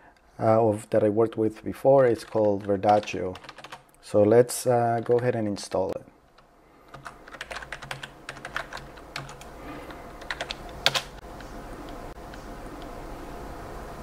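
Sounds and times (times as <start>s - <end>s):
steady low background hum: 0.0s - 14.0s
keyboard typing clicks: 2.1s - 4.0s, 5.9s - 13.0s.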